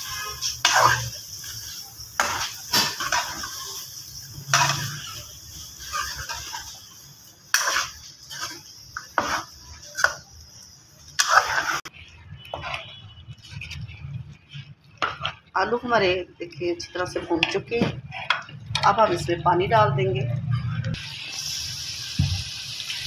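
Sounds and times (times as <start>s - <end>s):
frying hiss: 0.0s - 12.9s, 21.0s - 23.0s
metal spoon scraping a pan: 0.0s - 19.4s.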